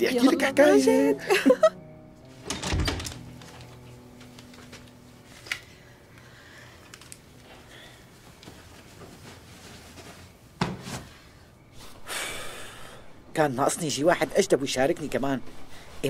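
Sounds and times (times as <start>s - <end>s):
pillow and bedding rustling: 7.4s - 12.0s.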